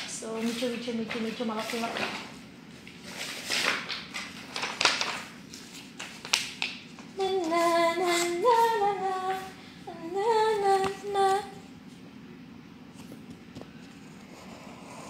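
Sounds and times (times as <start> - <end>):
paper rustling and crackling: 0.3 - 8.4
woman singing wordless notes: 7.2 - 11.7.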